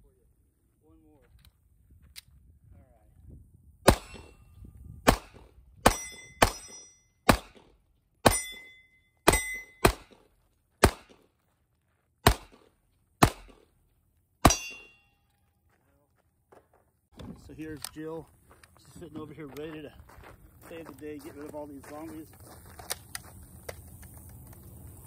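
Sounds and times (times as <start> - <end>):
pistol shots: 3.9 - 4.4, 5.0 - 11.2, 12.2 - 13.7, 14.4 - 14.9
high ringing ping on steel: 4.0 - 4.6, 5.9 - 7.3, 8.2 - 9.8, 14.5 - 15.3.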